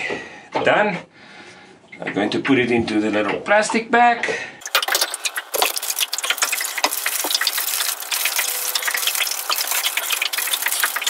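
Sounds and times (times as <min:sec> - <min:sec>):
plastic bag crinkling: 0:04.6 - 0:11.0.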